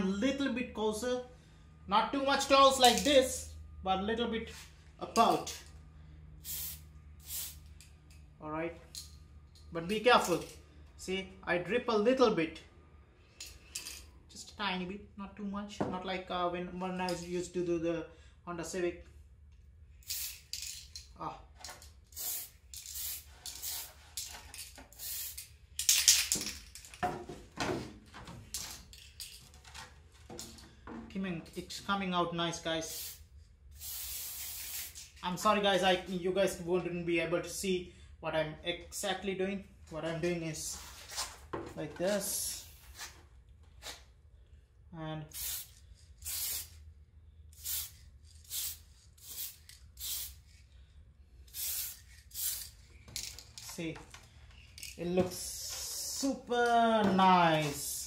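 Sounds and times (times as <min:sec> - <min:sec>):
spray can hissing bursts: 0:06.4 - 0:07.7, 0:20.0 - 0:20.8, 0:22.1 - 0:24.3, 0:24.9 - 0:25.5, 0:32.9 - 0:35.1, 0:45.3 - 0:46.8, 0:47.5 - 0:50.6, 0:51.5 - 0:52.9.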